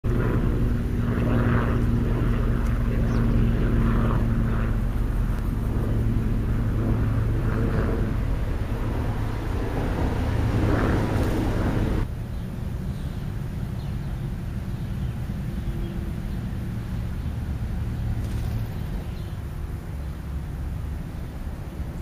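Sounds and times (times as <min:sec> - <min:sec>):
motor droning: 0:00.1 - 0:12.1.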